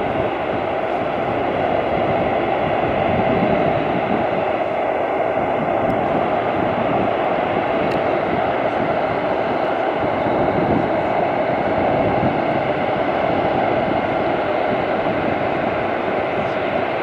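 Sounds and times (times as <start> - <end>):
jet engines running: 0.0 - 17.0.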